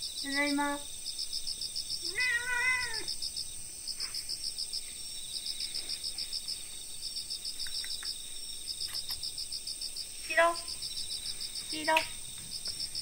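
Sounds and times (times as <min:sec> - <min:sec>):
cat meowing: 0:02.0 - 0:03.1.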